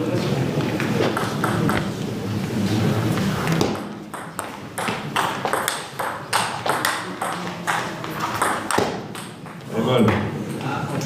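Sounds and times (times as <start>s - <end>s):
crowd murmur: 0.0s - 5.5s
table tennis ball hitting bats: 1.0s - 2.0s, 3.5s - 9.7s.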